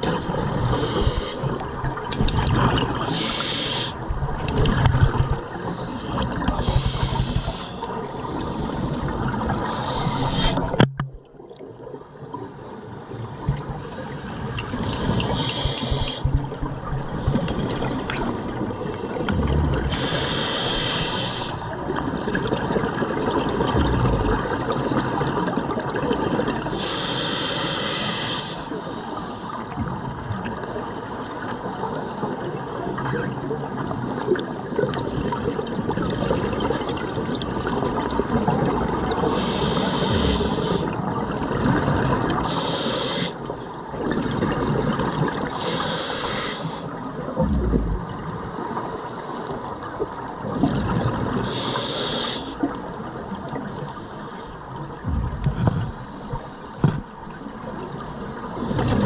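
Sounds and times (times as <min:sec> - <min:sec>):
breath hissing through regulator: 0:00.0 - 0:01.6, 0:03.0 - 0:04.0, 0:05.5 - 0:10.8, 0:14.9 - 0:16.4, 0:19.8 - 0:21.6, 0:26.7 - 0:28.8, 0:39.2 - 0:41.0, 0:42.4 - 0:43.5, 0:45.4 - 0:46.9, 0:51.4 - 0:52.7
bubbly rumbles of exhaled air: 0:00.0 - 0:03.1, 0:04.0 - 0:07.6, 0:14.7 - 0:20.2, 0:22.0 - 0:26.7, 0:47.2 - 0:48.4, 0:54.9 - 0:59.0
water noise: 0:00.0 - 0:59.0.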